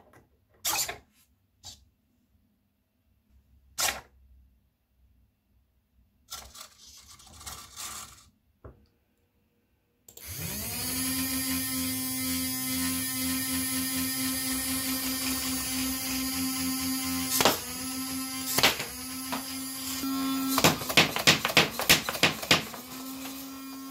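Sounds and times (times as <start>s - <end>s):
small servos whirring: 6.3s - 8.3s, 10.1s - 21.0s, 22.1s - 23.9s.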